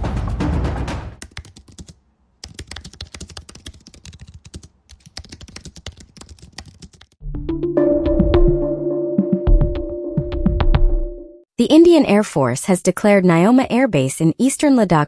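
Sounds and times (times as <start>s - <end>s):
music: 0.0s - 1.2s, 7.2s - 11.5s
fast typing on computer keyboard: 1.2s - 7.2s.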